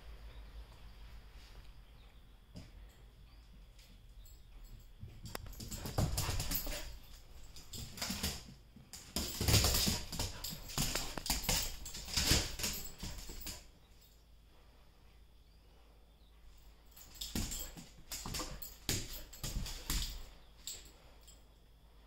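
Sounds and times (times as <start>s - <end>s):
dog claws clicking on hard floor: 5.2s - 13.6s, 17.0s - 20.8s.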